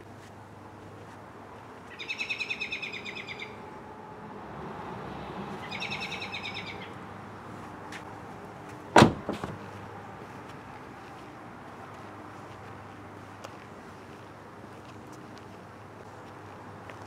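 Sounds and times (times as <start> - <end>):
bird trilling: 1.9 - 3.6, 5.6 - 7.0
car door shutting with a thud: 8.9 - 9.6.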